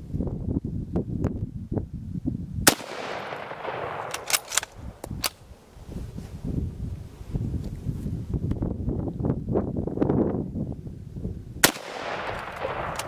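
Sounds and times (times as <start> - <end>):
wind rumble on microphone: 0.0 - 13.0
rifle shot: 2.7 - 5.4, 11.6 - 13.0
rifle bolt clicks: 3.6 - 5.4, 12.2 - 13.0.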